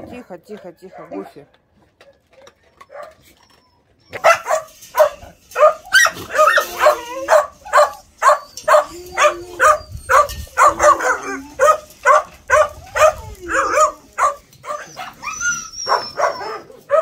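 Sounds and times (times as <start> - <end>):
dog whining: 2.6 - 17.0
dog barking: 4.2 - 15.2, 15.9 - 17.0.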